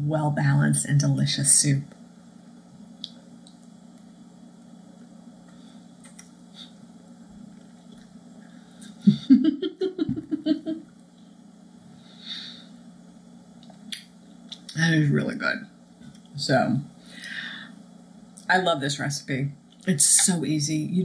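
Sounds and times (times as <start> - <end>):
steady low hum: 0.0 - 21.0
woman humming pleased: 9.1 - 10.8
soft breath: 11.8 - 12.8, 17.0 - 17.8.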